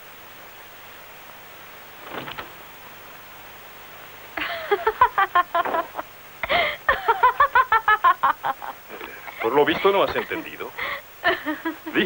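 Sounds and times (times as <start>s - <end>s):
film soundtrack hiss: 0.0s - 12.0s
woman laughing: 4.4s - 9.4s, 10.3s - 12.0s.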